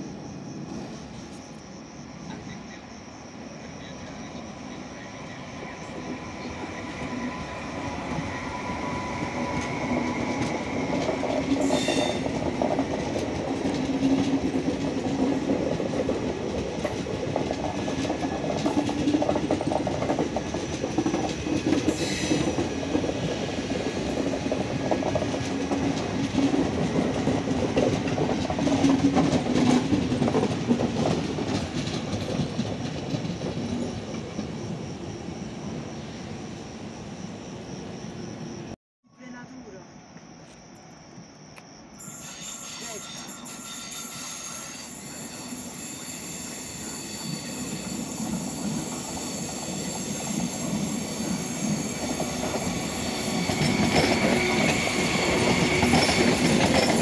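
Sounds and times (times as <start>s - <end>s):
train rumble: 0.0s - 38.8s, 42.6s - 57.0s
train wheels clacking on rails: 5.8s - 35.0s, 42.2s - 57.0s.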